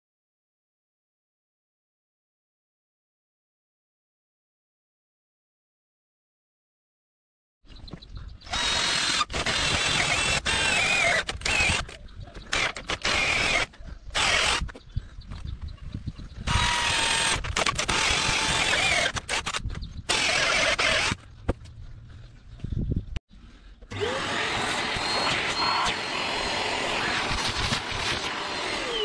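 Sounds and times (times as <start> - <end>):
electric power tool motor whine: 8.5 - 11.9, 12.5 - 14.6, 16.5 - 21.2, 23.9 - 29.0.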